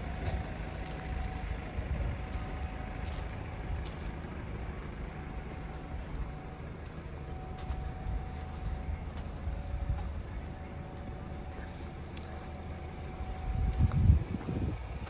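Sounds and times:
diesel car engine idling: 0:00.0 - 0:15.0
footsteps on gravel: 0:02.3 - 0:09.3.

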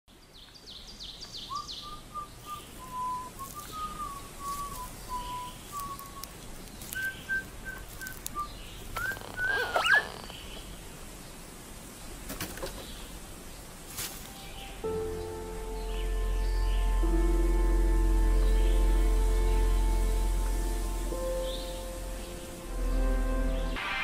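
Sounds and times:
bird chirps: 0:00.2 - 0:10.7, 0:14.3 - 0:17.1, 0:21.2 - 0:23.8
person whistling a tune: 0:01.8 - 0:06.2.

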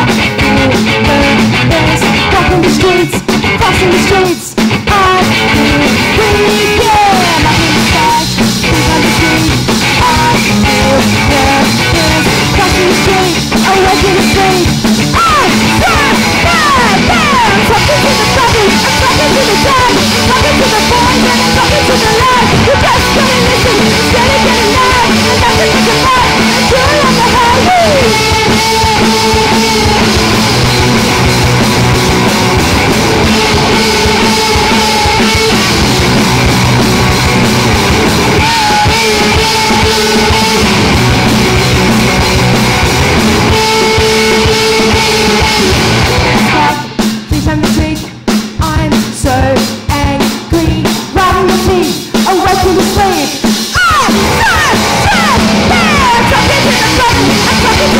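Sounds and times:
singer's vocals: 0:00.0 - 0:30.5, 0:33.1 - 0:35.9, 0:38.2 - 0:41.1, 0:43.5 - 0:57.9
punk rock band playing live: 0:00.0 - 0:57.9.

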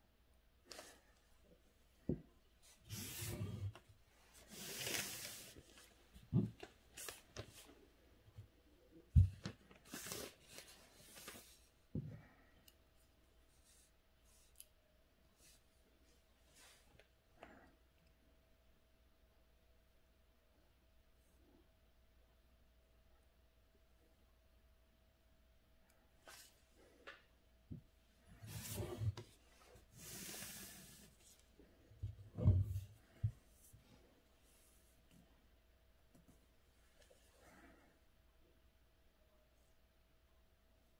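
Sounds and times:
paper sliding across desk: 0:02.7 - 0:07.7, 0:09.8 - 0:11.7, 0:28.3 - 0:33.8.

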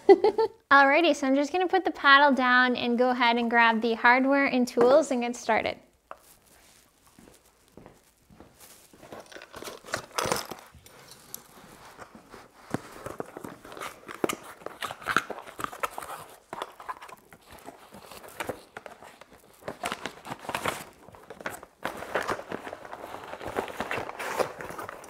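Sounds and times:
footsteps on concrete floor: 0:06.1 - 0:09.3
rustling and scraping of packaging: 0:06.2 - 0:25.0.

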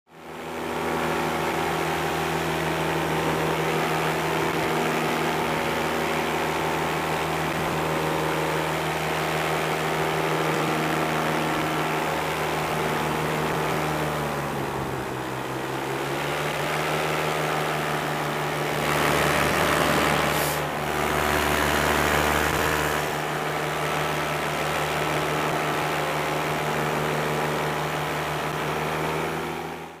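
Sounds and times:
paramotor engine and propeller: 0:00.1 - 0:30.0.

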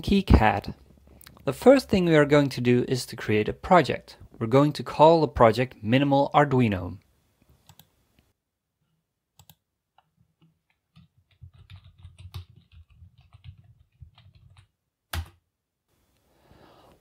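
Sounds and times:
computer keyboard typing: 0:09.4 - 0:15.4.

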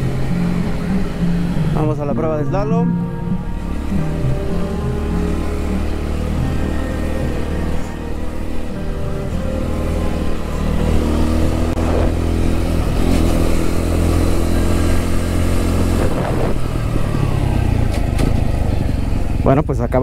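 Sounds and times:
motorcycle engine revving: 0:00.0 - 0:02.4, 0:03.0 - 0:20.0
wind noise on microphone: 0:15.8 - 0:16.8.

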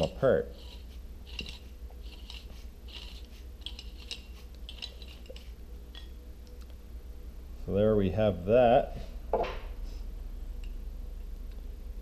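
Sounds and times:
metal threads scraping: 0:00.0 - 0:05.6
low steady hum: 0:00.0 - 0:12.0.

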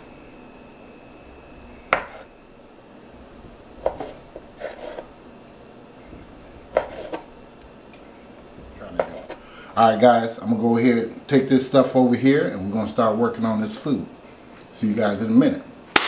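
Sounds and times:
knife knocking on wooden board: 0:02.0 - 0:02.2
knife slicing sausage: 0:02.0 - 0:02.3, 0:06.7 - 0:07.3.

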